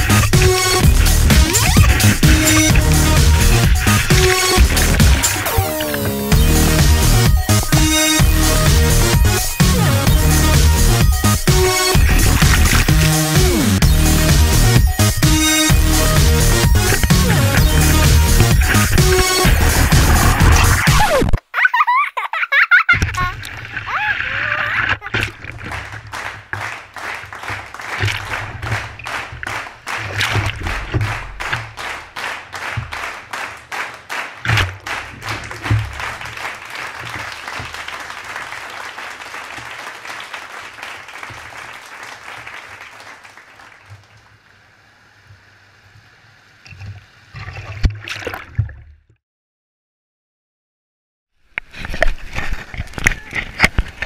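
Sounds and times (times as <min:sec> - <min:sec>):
low thumps: 0:00.0 - 0:09.4, 0:10.0 - 0:21.3
knocks: 0:34.4 - 0:36.4.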